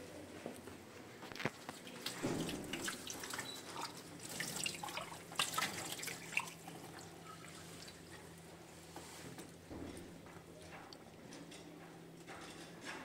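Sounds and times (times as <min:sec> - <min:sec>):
water running from tap: 0:02.2 - 0:08.0.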